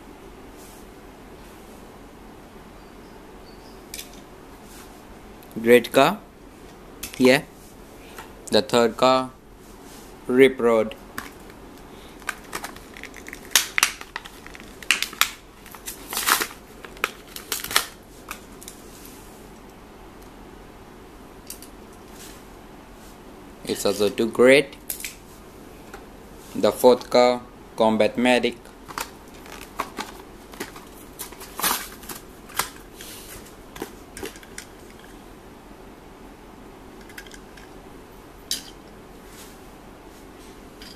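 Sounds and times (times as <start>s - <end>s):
plastic blister pack crinkling: 11.2s - 18.4s, 28.8s - 32.8s
plastic and cardboard tearing: 12.3s - 18.0s, 28.9s - 32.8s.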